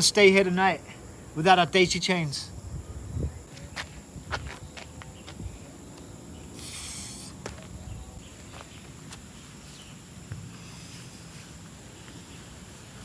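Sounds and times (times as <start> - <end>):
faint insect drone: 0.0 - 13.0
hammock rustle: 7.6 - 13.0.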